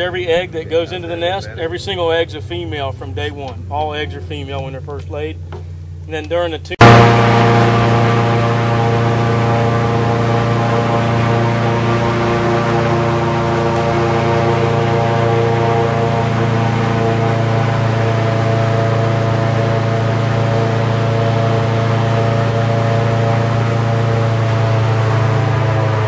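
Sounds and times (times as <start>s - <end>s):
airboat engine droning: 6.8s - 26.0s.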